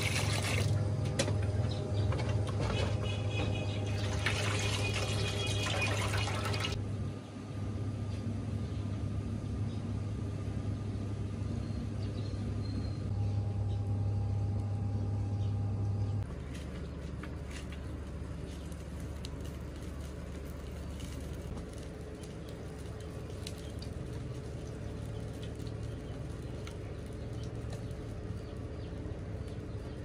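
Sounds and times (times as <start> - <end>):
steady low hum: 0.0 - 30.0
wood fire crackling: 16.2 - 30.0.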